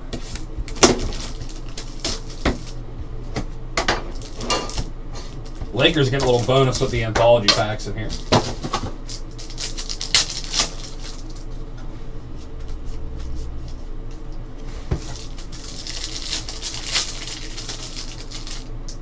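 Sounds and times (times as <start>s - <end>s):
trading cards crinkling and rustling: 0.2s - 2.8s, 4.1s - 11.6s, 14.8s - 19.0s.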